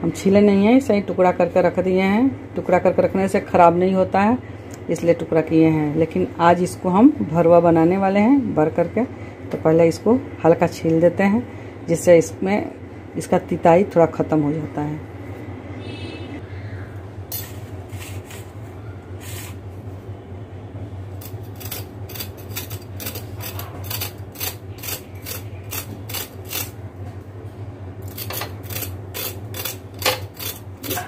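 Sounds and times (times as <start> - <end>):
steady low hum: 0.0 - 31.0
knife scraping gourd skin: 21.2 - 26.8, 28.0 - 31.0.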